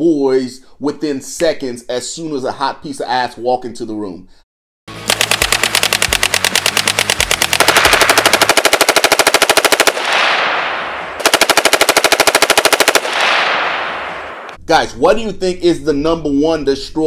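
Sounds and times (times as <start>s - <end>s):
machine gun firing bursts: 4.9s - 14.5s.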